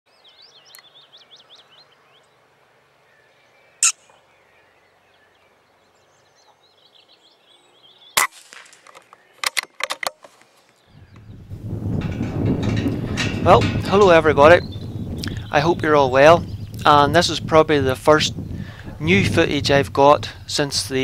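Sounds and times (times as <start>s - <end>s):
small birds chirping: 0.1s - 9.6s, 10.3s - 11.6s, 12.8s - 19.6s
air rifle shots: 8.2s - 9.8s
rifle clicks: 8.2s - 10.5s.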